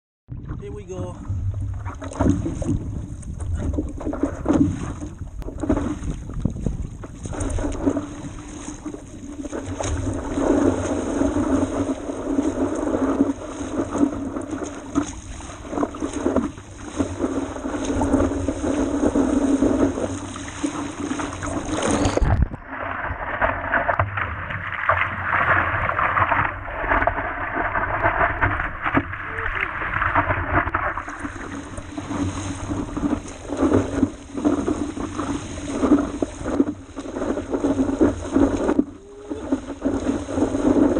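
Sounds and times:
wind buffeting microphone: 0.3 - 9.2
paddle splashes: 0.4 - 40.9
water slapping against board: 1.7 - 40.9.

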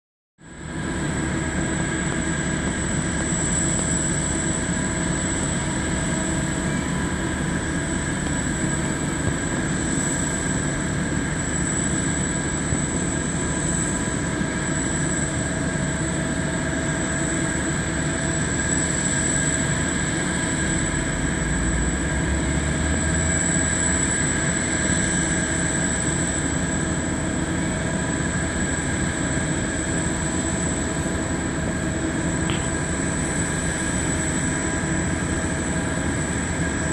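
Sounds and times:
high-pitched aircraft whine: 0.4 - 36.9
low rumble of ground equipment: 20.9 - 36.9.

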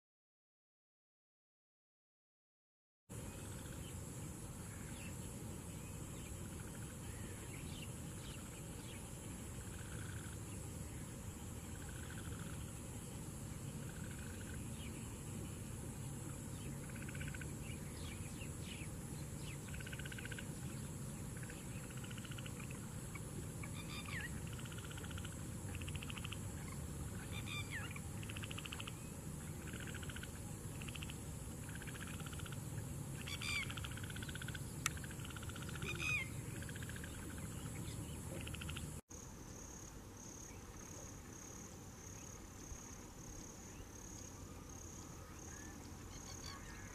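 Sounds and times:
high insect drone: 3.1 - 46.9
pulsing high insect call: 3.1 - 46.9
chorus of trilled calls: 21.4 - 29.0, 29.6 - 38.9.

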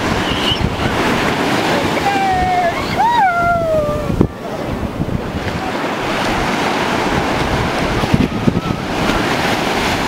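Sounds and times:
ocean surf breaking: 0.0 - 10.0
wind buffeting microphone: 0.0 - 10.0.

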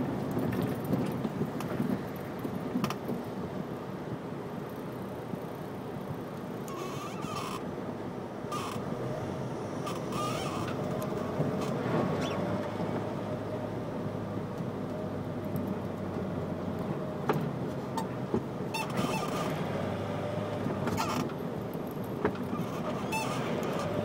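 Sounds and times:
tyres on the road: 0.0 - 24.0
faint drawn-out whine: 4.8 - 14.2.

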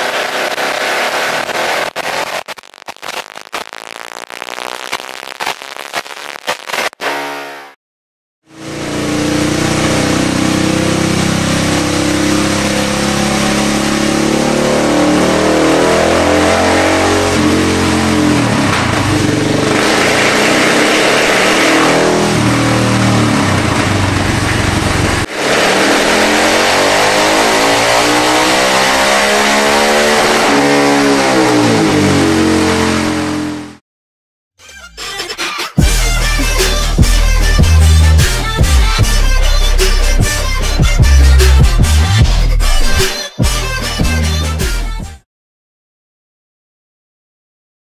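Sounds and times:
motorcycle engine revving: 8.5 - 33.8.

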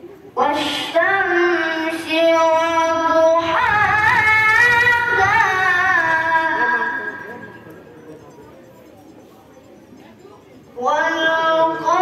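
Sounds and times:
boy reciting melodically: 0.3 - 8.0, 10.7 - 12.0.

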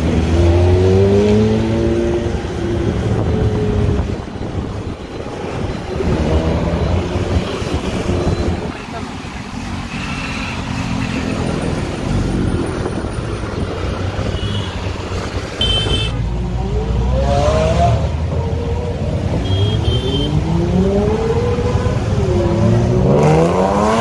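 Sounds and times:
traffic and road noise: 0.0 - 24.0
sports car engine revving: 20.1 - 24.0.

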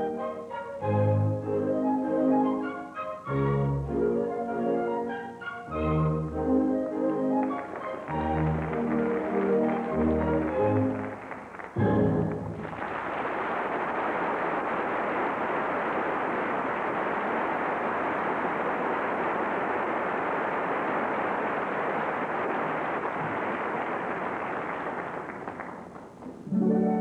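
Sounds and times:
audience applauding: 5.7 - 26.5.

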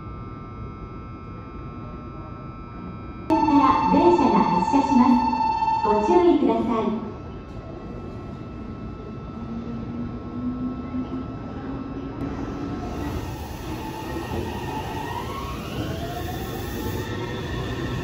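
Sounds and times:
electric train motor whine: 12.2 - 18.0.

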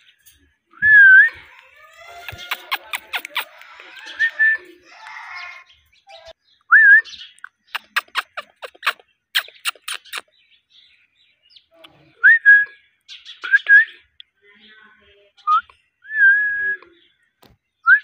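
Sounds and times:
parakeet sharp clicks: 2.2 - 4.0, 7.4 - 10.3.

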